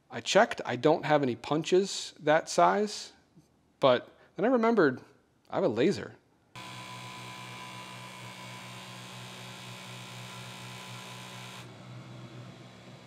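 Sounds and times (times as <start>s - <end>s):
laser cutter machine hum: 6.6s - 13.0s.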